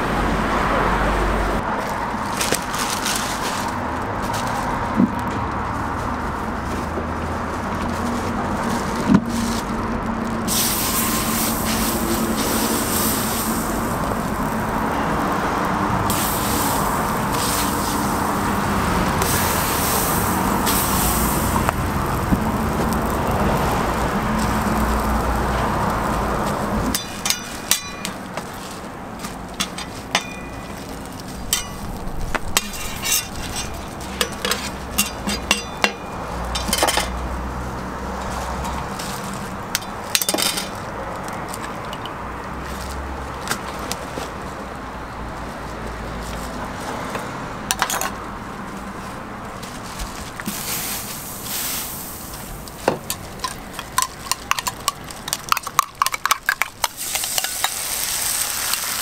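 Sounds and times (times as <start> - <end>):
bread sizzling on griddle: 10.4 - 36.0, 50.4 - 53.4, 56.9 - 59.0
metal spatula tapping griddle: 26.9 - 28.5, 29.6 - 30.7, 31.5 - 31.8, 32.6 - 37.1, 53.0 - 57.8.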